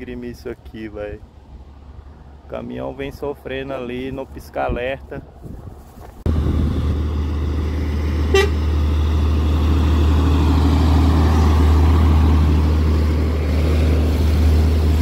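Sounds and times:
truck engine straining: 0:06.2 - 0:15.0
horn toot: 0:08.3 - 0:08.7.

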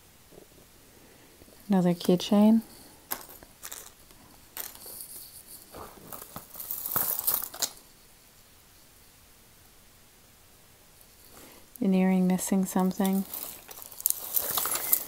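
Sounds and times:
jewelry clinking: 0:01.5 - 0:08.0, 0:12.7 - 0:15.0
plastic bag crinkling: 0:01.6 - 0:07.8, 0:12.8 - 0:15.0.

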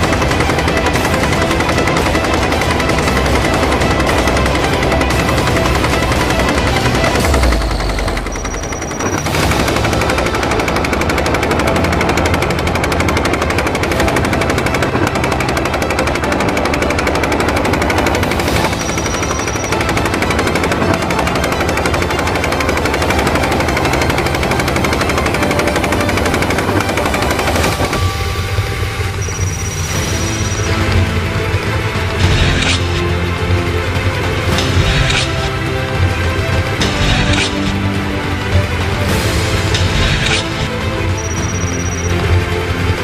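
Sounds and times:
rapid automatic gunfire: 0:00.0 - 0:28.2.

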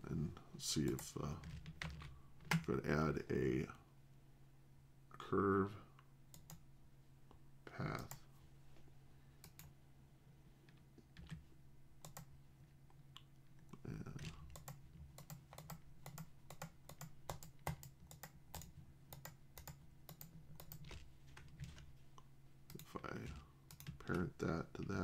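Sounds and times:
keyboard and mouse clicking: 0:06.3 - 0:06.6, 0:09.4 - 0:09.7, 0:12.0 - 0:12.3, 0:14.1 - 0:21.8, 0:22.7 - 0:24.2.

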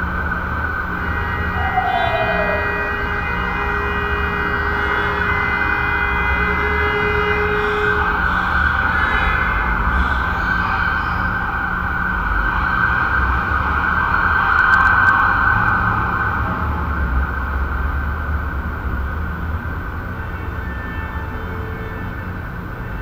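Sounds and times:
low hum and rumble: 0:00.0 - 0:20.3
broadband noise: 0:00.8 - 0:05.4.

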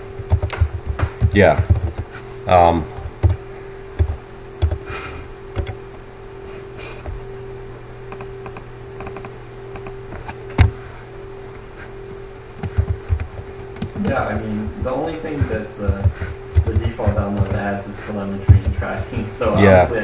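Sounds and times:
low electrical hum: 0:00.0 - 0:20.0
keyboard keystrokes: 0:00.3 - 0:02.1, 0:04.0 - 0:04.8, 0:05.6 - 0:05.8, 0:12.6 - 0:14.3, 0:15.4 - 0:17.6.

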